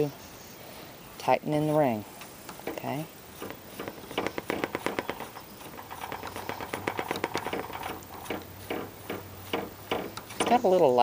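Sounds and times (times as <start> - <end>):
plastic ring clicking on threads: 2.5 - 10.6.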